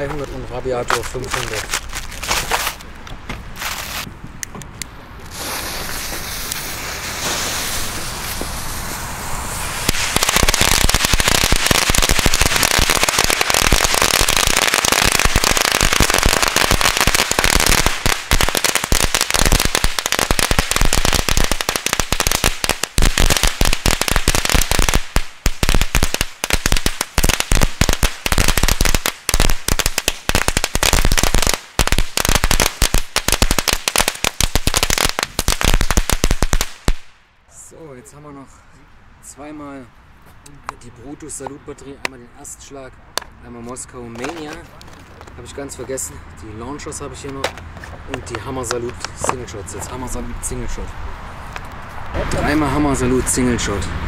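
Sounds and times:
firecrackers banging: 5.3s - 37.2s.

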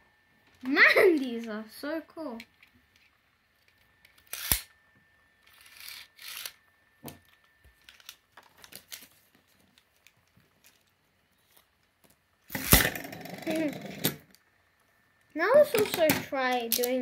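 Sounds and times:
spinning top whine: 2.4s - 9.1s, 12.4s - 17.0s.

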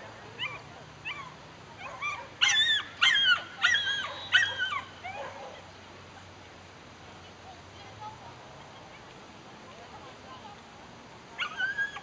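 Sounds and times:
dog barking: 1.8s - 5.6s.

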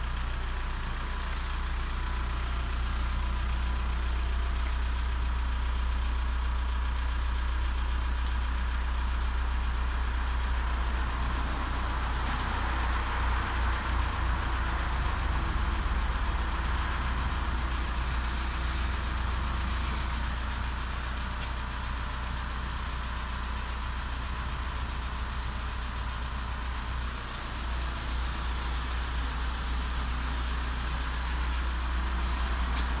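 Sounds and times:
constant low hum: 0.0s - 33.0s
pressure washer spraying water: 10.6s - 33.0s.

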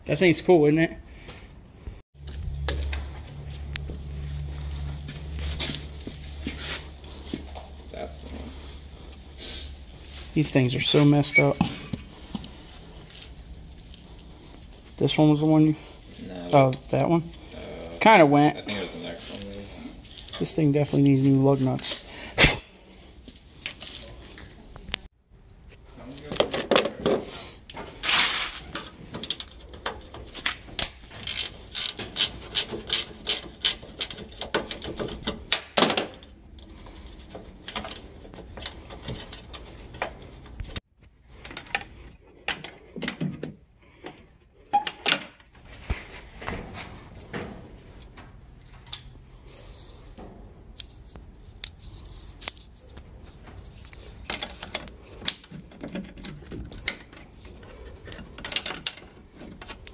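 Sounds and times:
hand tools clicking and scraping: 26.2s - 43.4s, 48.8s - 59.9s
ratchet wrench clicking: 31.1s - 34.2s.

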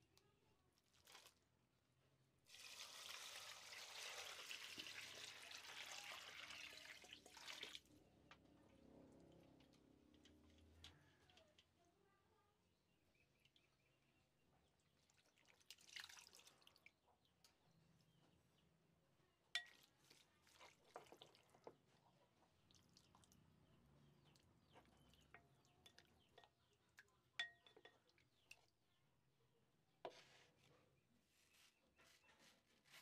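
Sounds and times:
wooden spoon stirring wet pearls: 0.7s - 1.6s, 19.6s - 29.0s
spoon knocking against glass: 27.4s - 28.1s.

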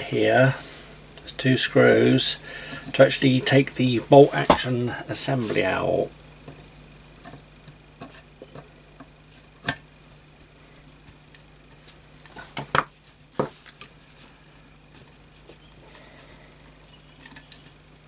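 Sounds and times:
small metal clicks and taps: 17.2s - 17.8s.

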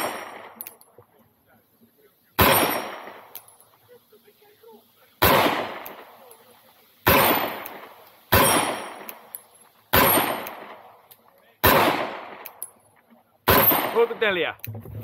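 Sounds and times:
gunshots with echo: 0.0s - 0.6s, 2.4s - 3.3s, 5.2s - 6.1s, 7.1s - 9.2s, 9.9s - 10.9s, 11.6s - 12.4s, 13.5s - 14.4s.

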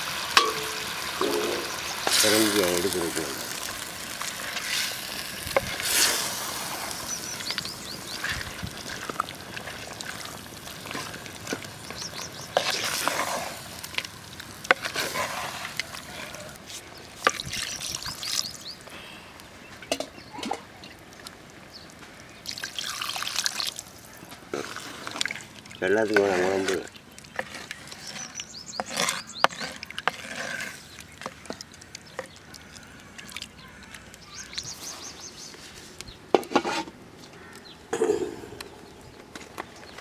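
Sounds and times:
spoon stirring wet food: 0.2s - 18.7s, 22.5s - 37.6s
water poured into pot: 22.4s - 24.0s.

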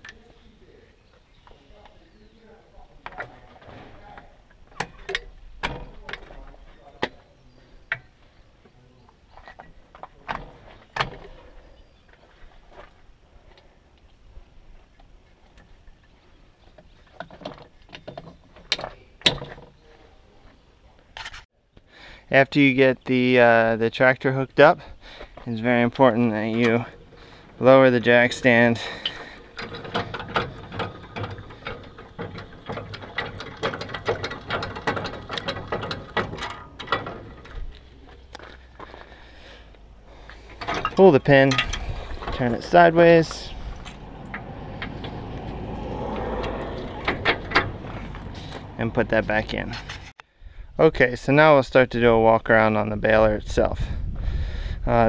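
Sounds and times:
hydraulic couplers clicking and clunking: 3.0s - 7.2s, 9.4s - 11.6s, 25.2s - 50.2s
jack stand gears clicking: 28.3s - 37.6s.

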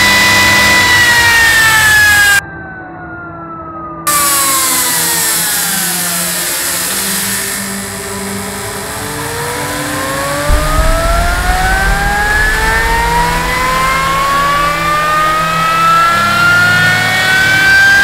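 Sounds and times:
brake disc spinning whine: 4.2s - 13.4s
low rumble: 10.5s - 16.8s.

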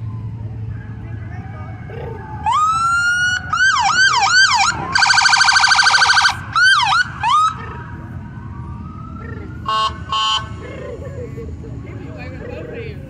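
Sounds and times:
electronic siren wailing and yelping: 1.3s - 11.6s.

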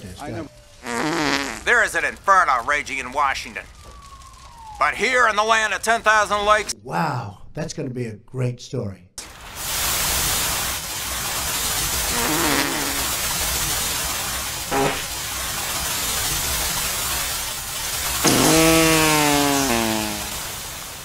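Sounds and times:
water pouring down: 9.2s - 21.0s.

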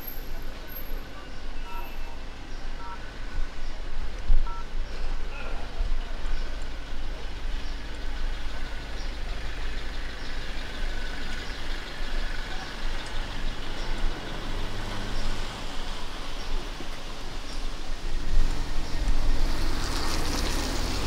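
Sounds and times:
low rumble of car engines: 0.0s - 21.0s
tyres hissing on wet road: 5.0s - 21.0s.

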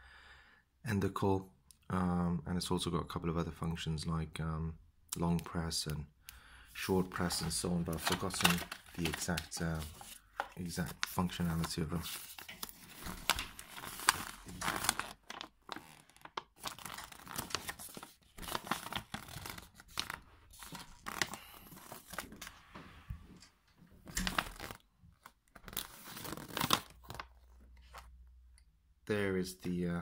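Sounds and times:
paper rustling and crinkling: 6.8s - 22.7s, 24.0s - 28.1s.

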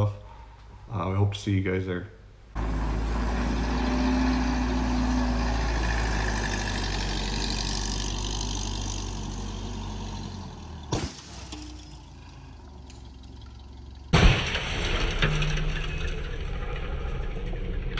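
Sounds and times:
diesel engine running: 2.5s - 14.6s.

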